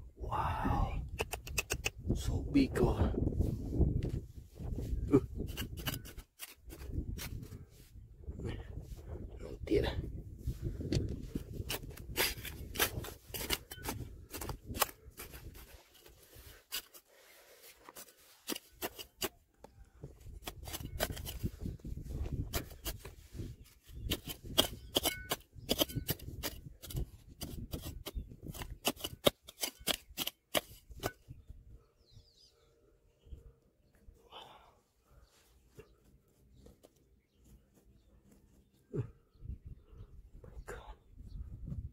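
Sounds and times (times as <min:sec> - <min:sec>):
digging tool scraping stone: 0:05.0 - 0:07.6, 0:10.9 - 0:19.4, 0:20.3 - 0:31.2.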